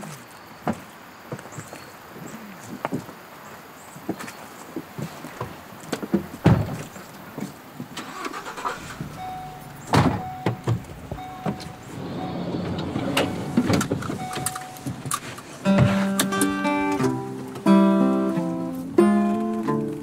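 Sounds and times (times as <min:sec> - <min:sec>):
knocks clicks and shuffling: 0:04.0 - 0:20.0
dashboard chime tones: 0:09.2 - 0:15.0
heavy thumps: 0:09.6 - 0:17.8
seatbelt being pulled: 0:11.2 - 0:16.4.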